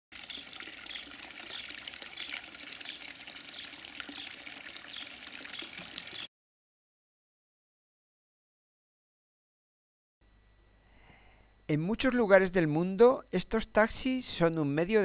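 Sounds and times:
water trickling into pond: 0:00.1 - 0:06.3.

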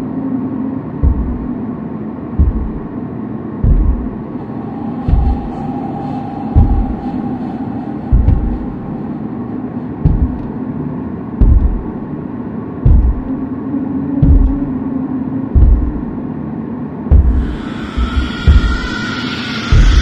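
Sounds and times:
low rumbling drone: 0:00.0 - 0:20.0
deep thumps: 0:01.0 - 0:01.6, 0:02.3 - 0:03.0, 0:03.6 - 0:05.8, 0:06.4 - 0:09.2, 0:09.9 - 0:10.6, 0:11.3 - 0:12.2, 0:12.8 - 0:13.4, 0:14.2 - 0:14.7, 0:15.6 - 0:16.2, 0:17.1 - 0:19.1, 0:19.7 - 0:20.0.

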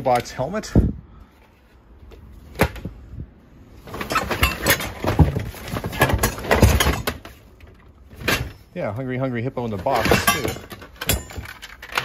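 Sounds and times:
toys rummaged in cardboard box: 0:03.7 - 0:12.0.

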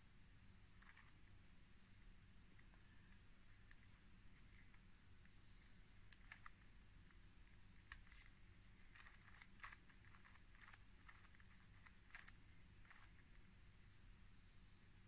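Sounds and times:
puzzle cube layers clicking: 0:06.1 - 0:06.6, 0:07.5 - 0:13.3.

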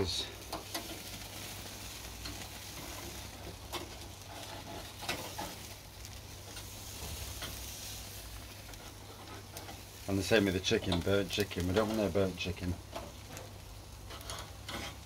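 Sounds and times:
fat popping and crackling: 0:00.0 - 0:15.0
meat sizzling on a grill: 0:00.0 - 0:15.0.

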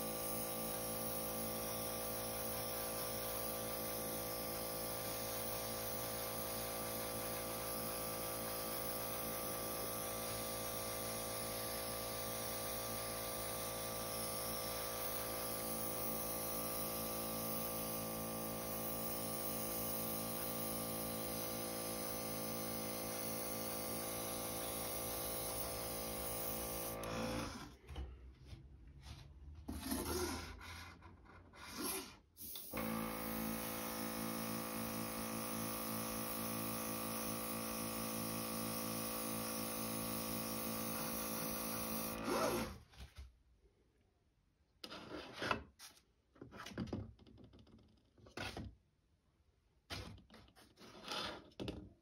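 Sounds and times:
compressor humming: 0:00.0 - 0:27.2, 0:32.4 - 0:42.4
airbrush hissing: 0:08.5 - 0:27.0, 0:32.4 - 0:42.2.

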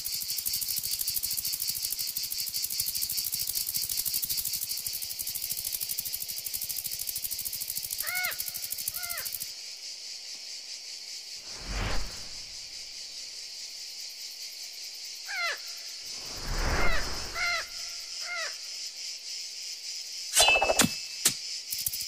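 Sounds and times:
high insect drone: 0:00.0 - 0:22.0
whooshing swishes: 0:11.5 - 0:12.6, 0:16.1 - 0:17.8.

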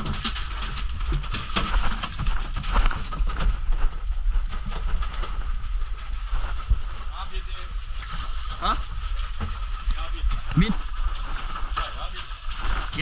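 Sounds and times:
knocks against the hull: 0:00.0 - 0:05.5
boat engine rumbling: 0:00.0 - 0:13.0.

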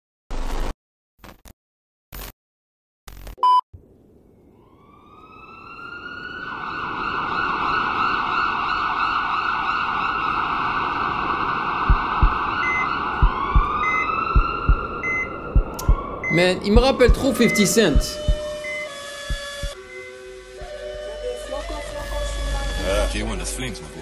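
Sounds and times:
siren wail: 0:04.3 - 0:22.8
deep paired thumps: 0:11.9 - 0:12.4, 0:13.2 - 0:13.8, 0:14.4 - 0:14.9, 0:15.6 - 0:16.1, 0:18.0 - 0:18.5, 0:19.3 - 0:19.8.

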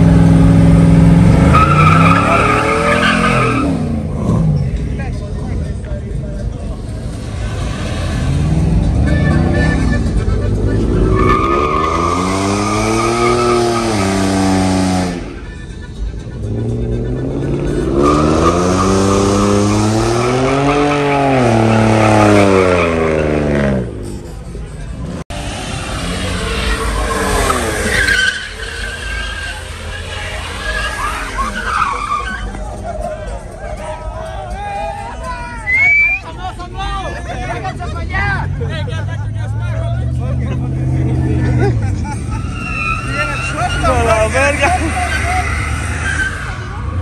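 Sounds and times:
truck engine revving high: 0:00.0 - 0:04.8, 0:06.7 - 0:33.4, 0:37.7 - 0:47.0
high tire squeal: 0:01.3 - 0:04.8, 0:06.8 - 0:15.8, 0:16.6 - 0:24.0, 0:25.4 - 0:36.4, 0:41.4 - 0:47.0.

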